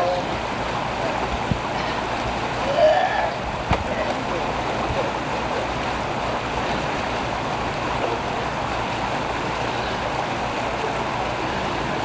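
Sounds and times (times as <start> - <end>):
water rushing through culvert: 0.0 - 12.0.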